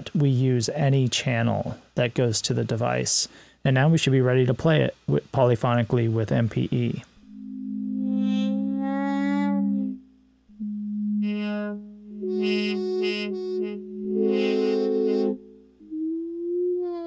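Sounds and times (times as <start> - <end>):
synthesizer chords: 7.2 - 17.0.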